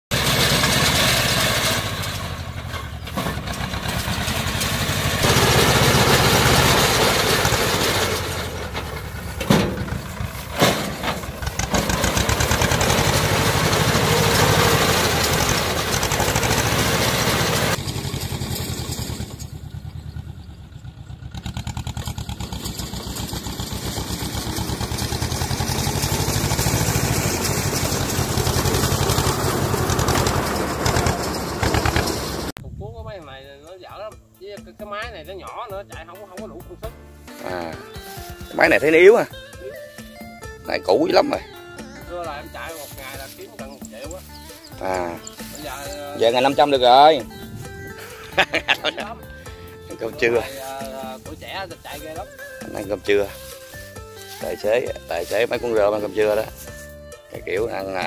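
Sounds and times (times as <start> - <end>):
baler machinery working: 0.1 - 20.4, 21.8 - 32.5
tractor engine running under load: 0.1 - 32.6, 37.8 - 58.0.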